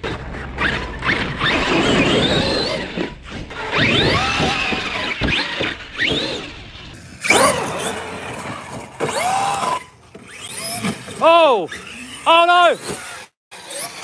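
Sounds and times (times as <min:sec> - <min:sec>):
electric motor whining: 0:00.4 - 0:14.0.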